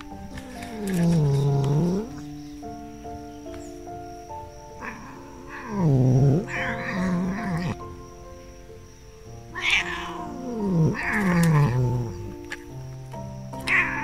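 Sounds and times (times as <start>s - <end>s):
cat yowling: 4.7s - 7.8s, 9.5s - 12.4s, 13.6s - 14.0s.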